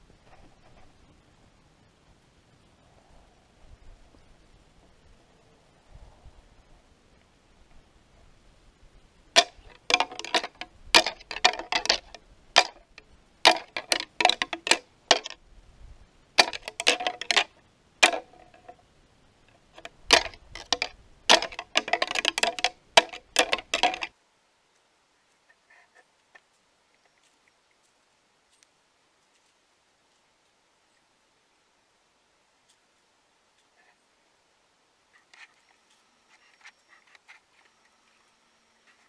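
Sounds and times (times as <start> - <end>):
deer antlers clacking and grinding: 9.4 - 15.4, 16.4 - 18.8, 19.5 - 24.1.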